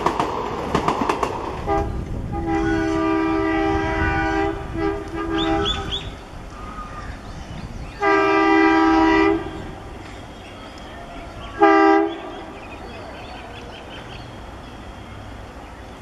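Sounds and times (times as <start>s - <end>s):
train rumble: 0.0s - 16.0s
locomotive air horn: 1.6s - 6.2s, 8.0s - 10.3s, 11.5s - 12.6s.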